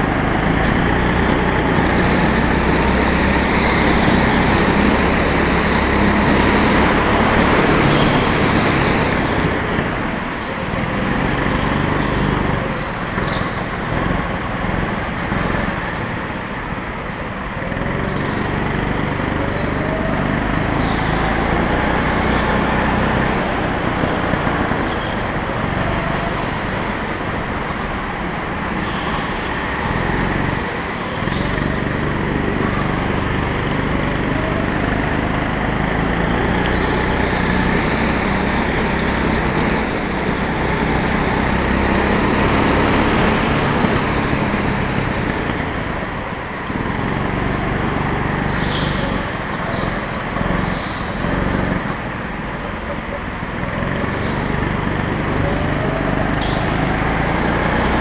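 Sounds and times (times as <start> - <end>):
go-kart engine running hard: 0.0 - 58.0.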